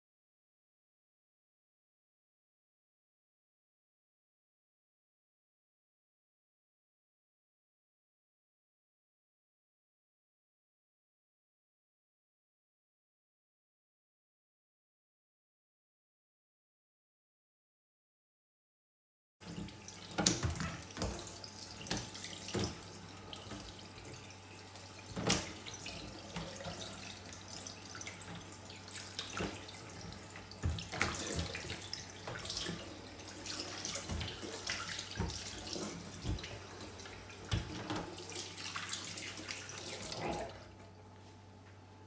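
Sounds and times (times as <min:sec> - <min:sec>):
tap running into a sink: 0:19.4 - 0:40.6
water splashing: 0:19.5 - 0:40.6.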